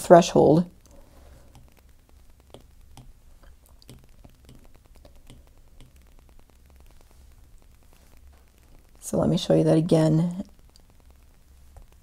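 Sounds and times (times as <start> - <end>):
low steady hum: 0.0 - 12.0
stylus tapping glass screen: 1.5 - 6.4.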